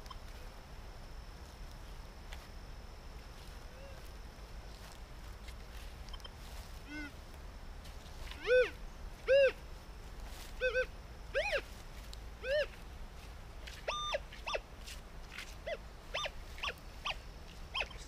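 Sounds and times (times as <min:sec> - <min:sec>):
metal detector beeps: 0:13.8 - 0:14.6, 0:16.2 - 0:18.0.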